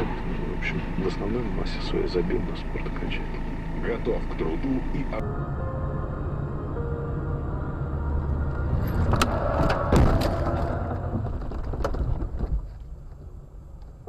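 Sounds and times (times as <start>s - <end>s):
road and engine noise: 0.0s - 14.0s
car crash bangs and knocks: 9.0s - 12.7s.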